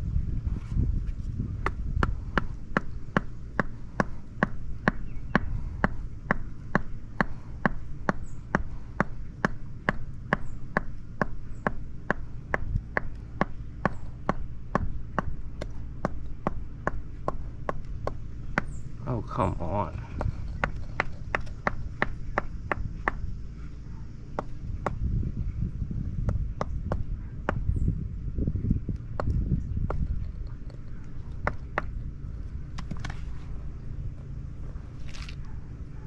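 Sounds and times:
rubber mallet tapping concrete: 1.6s - 23.3s, 24.3s - 25.2s, 26.2s - 27.7s, 28.9s - 32.0s.

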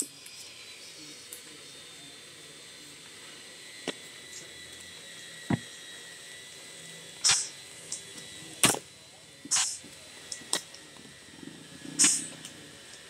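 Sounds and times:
sharp click: 7.2s - 8.0s, 12.0s - 12.3s.

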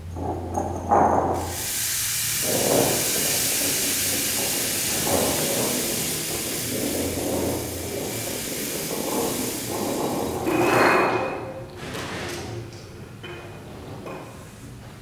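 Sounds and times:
breathy trumpet hiss: 1.5s - 10.0s.

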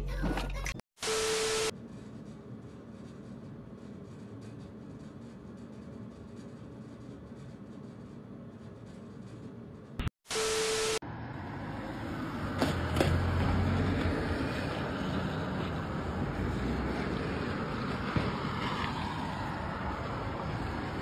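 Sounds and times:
steady beep: 1.0s - 1.7s, 10.3s - 11.0s
tv static hiss: 1.0s - 1.7s, 10.3s - 11.0s.

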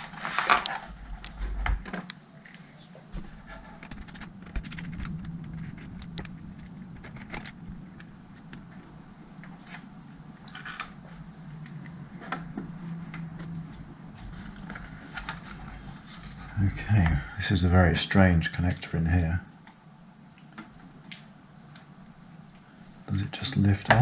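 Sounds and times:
low steady hum: 0.0s - 24.0s
laptop parts clicking and rattling: 3.5s - 8.1s.

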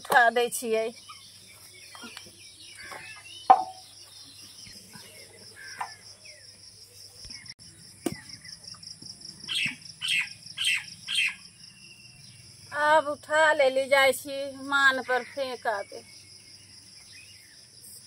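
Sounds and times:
insects chirring: 0.0s - 18.0s
bird chirping: 0.2s - 14.1s, 14.7s - 18.0s
sharp knock: 3.5s - 3.8s.

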